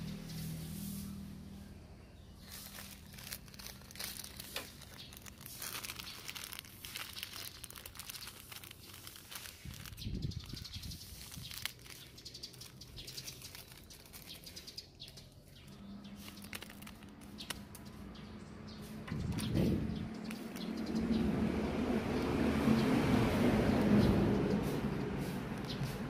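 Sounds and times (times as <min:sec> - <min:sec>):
scissors snipping foil: 0:02.4 - 0:10.0
packaging crinkling and rustling: 0:02.4 - 0:17.9.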